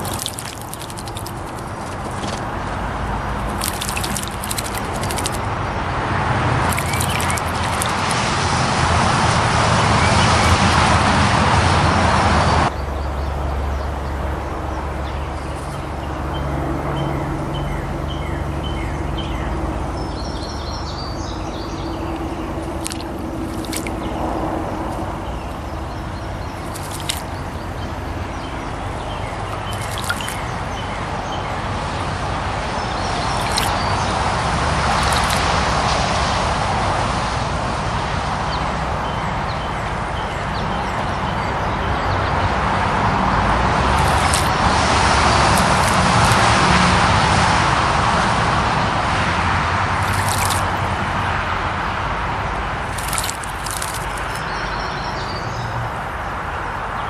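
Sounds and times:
birds chirping faintly: 0.0 - 5.5, 6.6 - 8.2, 12.7 - 34.3
birds splashing in water: 0.0 - 11.2, 12.7 - 57.0
road traffic noise: 0.0 - 57.0.

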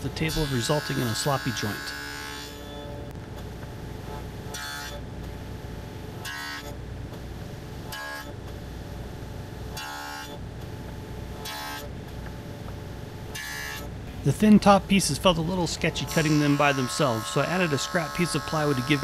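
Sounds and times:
table saw humming: 0.0 - 3.0, 13.3 - 19.0
saw whining through wood: 0.2 - 2.8, 15.4 - 19.0.

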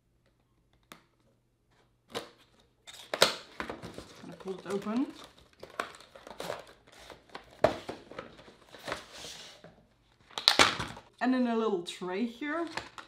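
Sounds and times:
plastic tray crinkling: 2.9 - 9.0.

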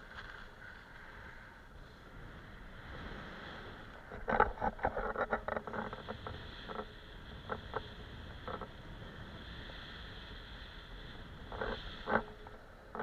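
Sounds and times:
skis hissing over snow: 0.0 - 4.0, 6.3 - 12.0.

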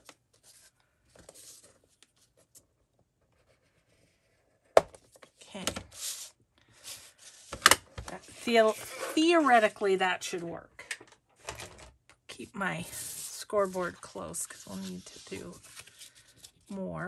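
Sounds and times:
scoring tool scraping cardstock: 8.2 - 9.7, 12.8 - 16.2.

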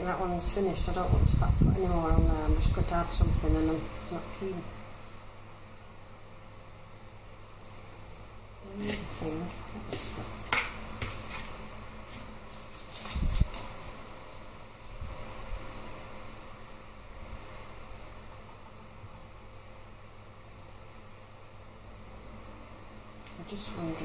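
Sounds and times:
steady high hiss: 0.0 - 24.0
faint clicks and paper rustles: 11.0 - 13.8.

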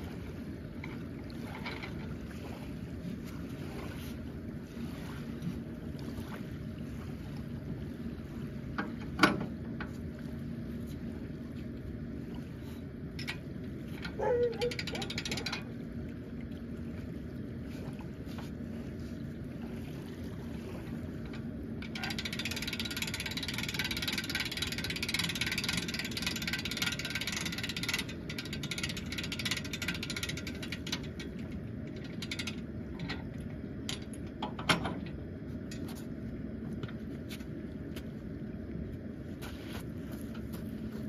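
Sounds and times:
winch ratchet clicking: 14.6 - 15.7, 21.8 - 32.6.

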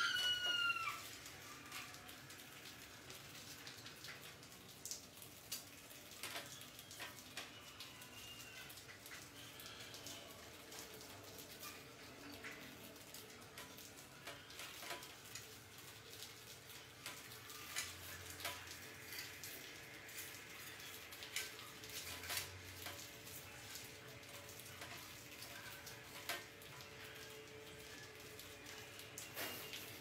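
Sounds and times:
rats clicking and scratching: 13.5 - 28.4.

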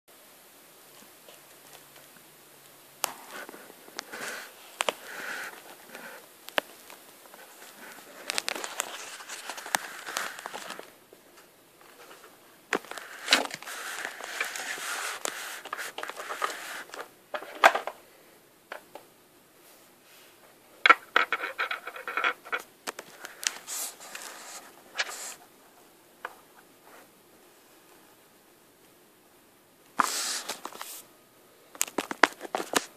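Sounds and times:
plastic tub crinkling: 3.4 - 11.0.

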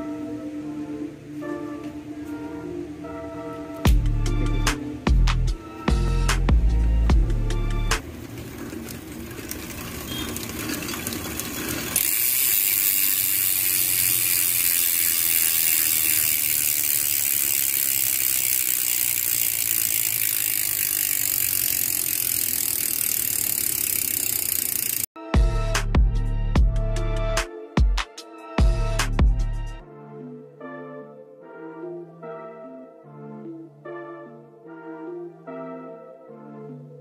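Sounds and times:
bicycle freehub ratcheting buzz: 3.9 - 25.1.

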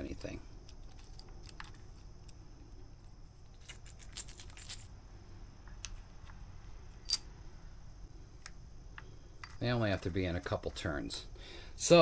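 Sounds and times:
small metal hardware clicking: 7.0 - 7.8
sharp metallic clink: 7.0 - 8.0.

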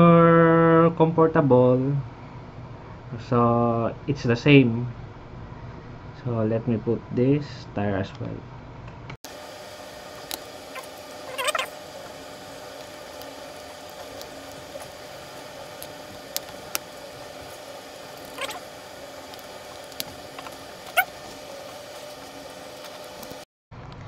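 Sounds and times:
steady background hiss: 9.3 - 23.4
rubber tires squeaking: 10.7 - 11.8, 18.3 - 18.7, 20.0 - 21.3.

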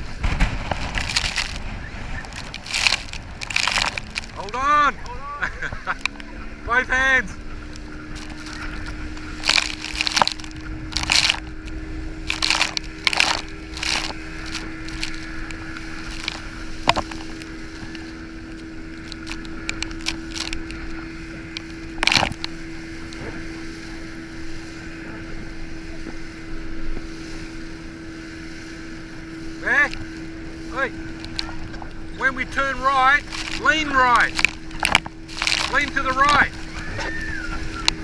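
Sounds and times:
rushing water: 0.0 - 38.0
speedboat engine hum: 0.0 - 38.0
wind: 0.0 - 38.0
water spray splashes: 32.7 - 38.0.

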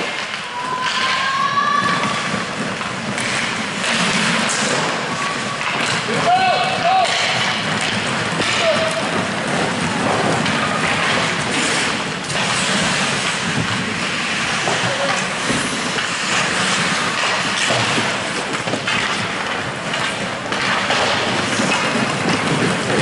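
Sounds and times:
skates and sticks on ice: 0.0 - 23.0.

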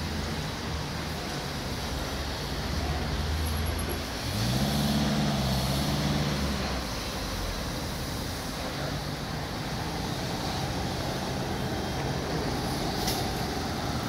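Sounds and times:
cars passing close by: 0.0 - 14.0
steady traffic rush: 0.0 - 14.0.

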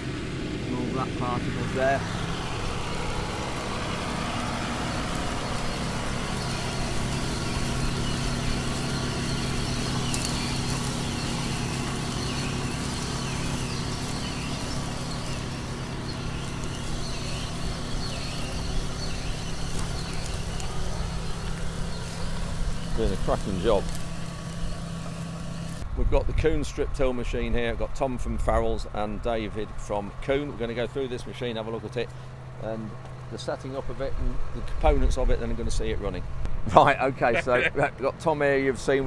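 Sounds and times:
cultivator discs cutting soil: 0.0 - 25.8
tractor diesel engine under load: 0.0 - 39.0.

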